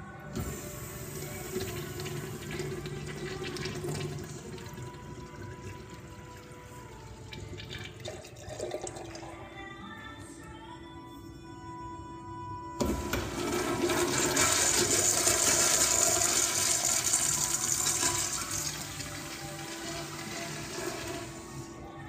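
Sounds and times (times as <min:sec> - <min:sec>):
urinal flushing: 0:00.3 - 0:09.5, 0:12.8 - 0:21.8.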